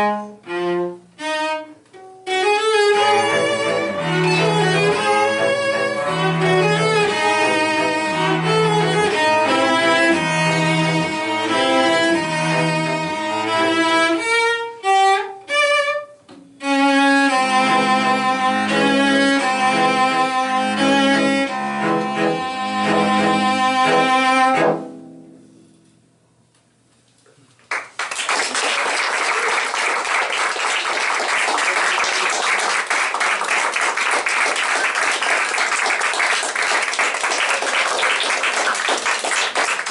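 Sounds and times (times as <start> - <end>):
cellos playing sustained chords: 0.0 - 25.8
click: 25.8 - 27.4
audience applause: 27.7 - 39.9.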